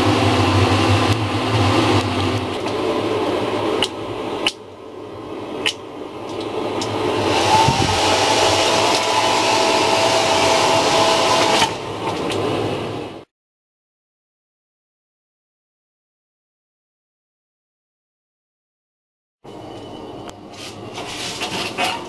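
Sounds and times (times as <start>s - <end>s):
hair dryer blowing: 0.0s - 4.6s, 6.6s - 12.7s.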